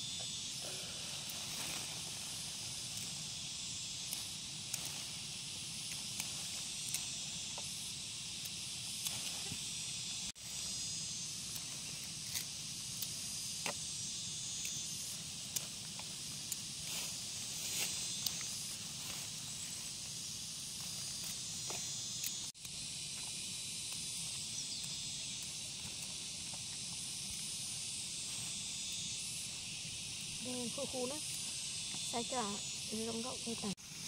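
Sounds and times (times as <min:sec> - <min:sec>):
steady high hiss: 0:00.0 - 0:34.0
dry plants crackling and rustling: 0:00.8 - 0:07.8.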